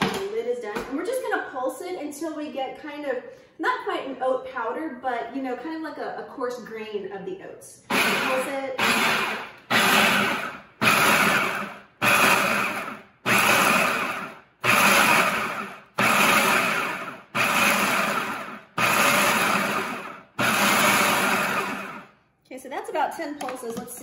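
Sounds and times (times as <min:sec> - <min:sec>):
food processor pulsing: 0:07.9 - 0:22.1.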